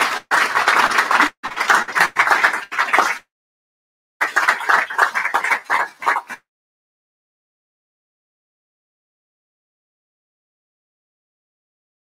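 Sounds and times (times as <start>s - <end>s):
audience applauding: 0.0s - 3.2s, 4.2s - 6.4s.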